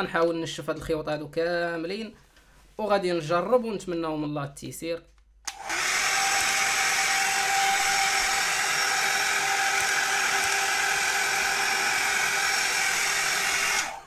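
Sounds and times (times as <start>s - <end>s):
hair dryer blowing air: 5.5s - 14.0s.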